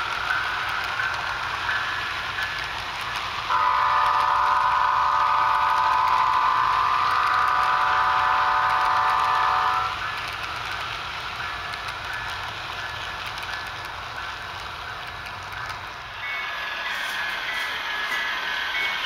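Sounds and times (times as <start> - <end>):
model freight cars rolling: 0.0 - 19.0
model train horn blast: 3.5 - 9.9.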